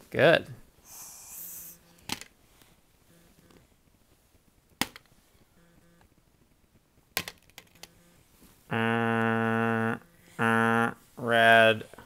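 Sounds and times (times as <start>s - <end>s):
loud buzzing tone: 3.1s - 3.6s, 5.6s - 6.1s.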